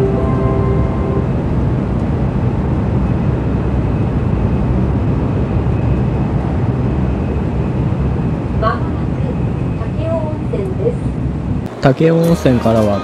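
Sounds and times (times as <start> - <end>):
faint high whine: 0.0 - 2.0
train rumble inside carriage: 0.0 - 13.0.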